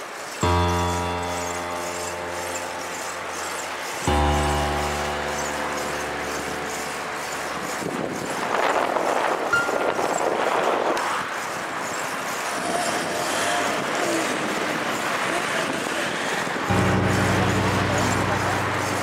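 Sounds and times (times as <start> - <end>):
held music chord: 0.4 - 10.8, 16.7 - 19.0.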